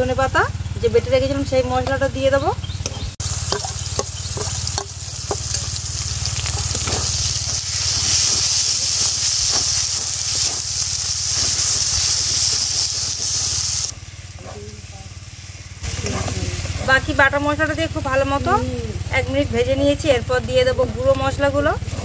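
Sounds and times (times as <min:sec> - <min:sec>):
metal ladle scraping a wok: 0:02.8 - 0:14.8
paste sizzling in hot oil: 0:03.2 - 0:19.9.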